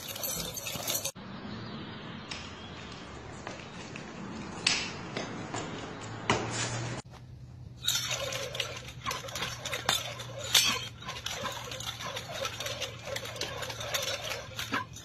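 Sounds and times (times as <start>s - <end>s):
nunchucks clacking and clinking: 0.0s - 1.2s, 7.8s - 15.0s
outdoor background noise: 0.0s - 15.0s.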